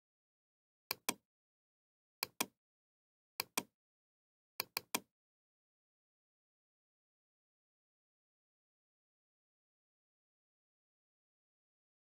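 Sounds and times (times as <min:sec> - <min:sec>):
computer mouse double-clicking: 0:00.9 - 0:01.2, 0:02.2 - 0:02.6, 0:03.4 - 0:03.7, 0:04.6 - 0:05.1.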